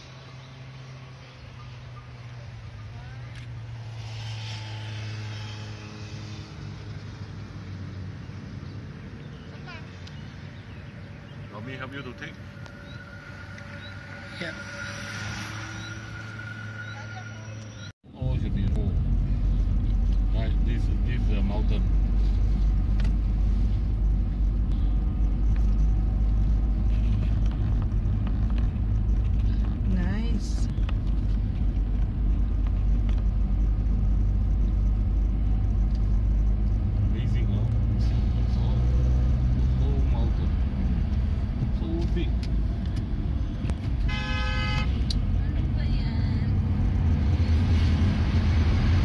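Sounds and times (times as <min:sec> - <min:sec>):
motor engine droning: 0:00.0 - 0:17.9
car engine and tyre noise: 0:00.0 - 0:49.0.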